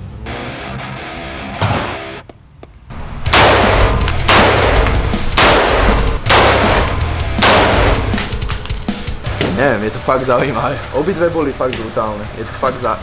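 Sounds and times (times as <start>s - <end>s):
rifle shots echoing indoors: 3.3s - 8.3s.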